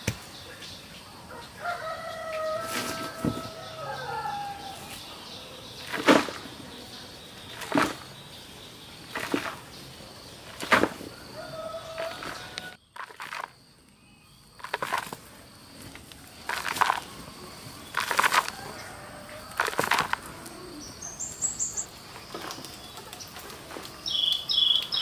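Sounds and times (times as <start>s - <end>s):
machete chopping dry soil: 0.0s - 0.3s, 5.9s - 6.5s, 7.6s - 8.1s, 9.1s - 9.6s, 10.5s - 11.1s, 18.0s - 18.6s, 19.6s - 20.2s
rooster crowing: 1.3s - 5.2s, 11.1s - 12.8s, 18.4s - 20.9s
soil scooped into plastic basin: 7.5s - 8.1s, 9.1s - 9.7s, 10.5s - 11.2s, 14.6s - 17.1s, 17.8s - 18.8s, 19.4s - 20.3s.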